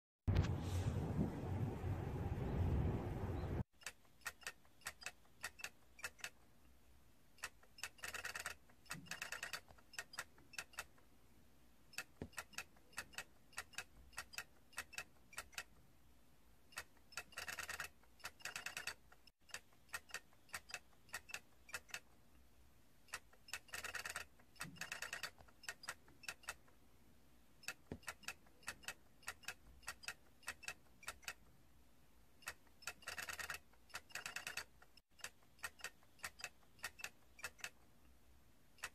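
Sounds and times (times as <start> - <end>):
mechanical toy clicking: 3.8 - 6.4, 7.4 - 11.0, 11.9 - 15.8, 16.7 - 22.2, 23.1 - 26.7, 27.6 - 31.5, 32.4 - 37.9.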